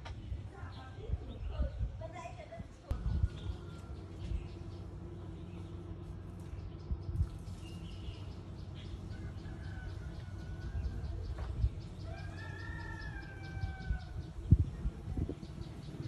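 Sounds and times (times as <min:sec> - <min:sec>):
steady low rumble: 0:02.8 - 0:16.0
rooster crowing: 0:09.1 - 0:11.2, 0:12.0 - 0:14.2.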